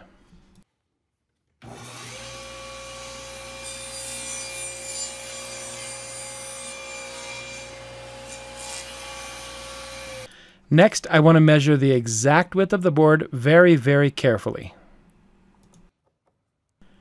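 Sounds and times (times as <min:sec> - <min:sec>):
table saw running: 0:01.6 - 0:10.3
saw blade cutting board: 0:01.7 - 0:10.3.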